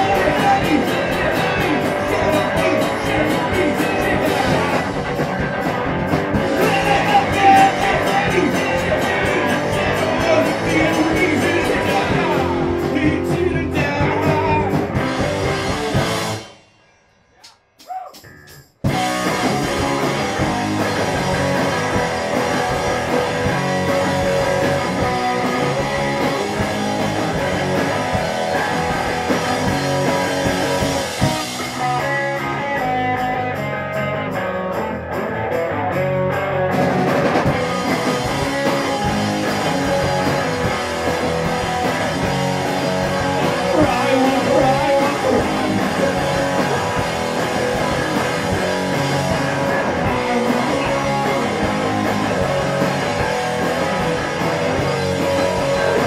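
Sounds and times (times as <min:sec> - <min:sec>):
person singing: 0:00.0 - 0:04.9, 0:06.5 - 0:14.8, 0:43.5 - 0:46.6
electric bass: 0:00.0 - 0:16.6, 0:18.3 - 0:56.0
drum kit: 0:00.0 - 0:56.0.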